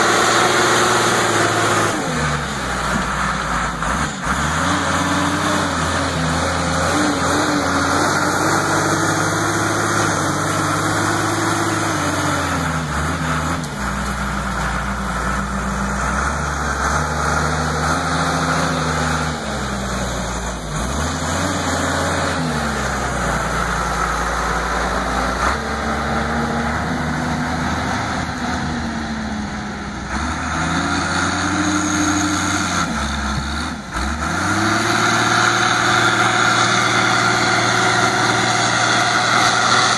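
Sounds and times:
wheel loader diesel engine: 0.0s - 39.9s.

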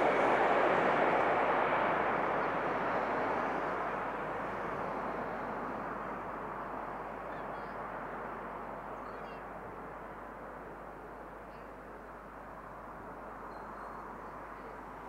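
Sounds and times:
jet aircraft noise: 0.0s - 8.7s.

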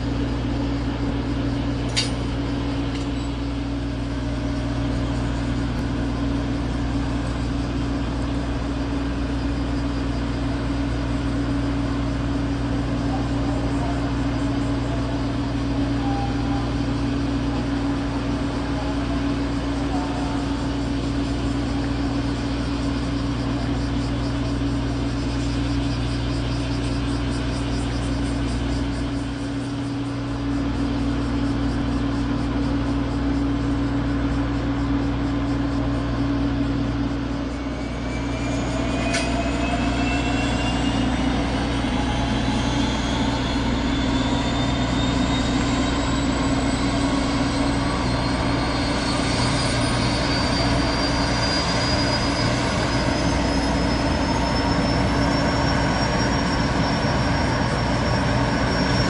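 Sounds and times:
low machinery drone: 0.0s - 59.0s
turbine whine rising in pitch: 14.1s - 59.0s.

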